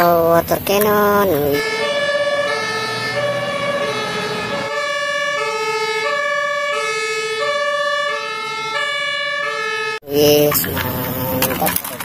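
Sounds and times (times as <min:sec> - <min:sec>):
two-tone fire engine siren: 0:01.4 - 0:10.6.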